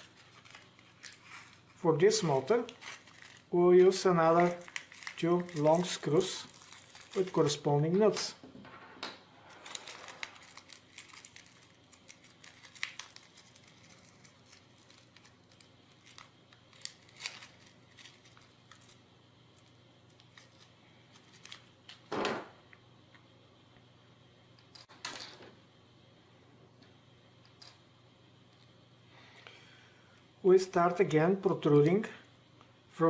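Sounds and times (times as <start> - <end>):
plastic crinkling: 2.3 - 7.7, 9.7 - 19.0
screws jingling in plastic bag: 2.3 - 7.7, 9.6 - 19.0.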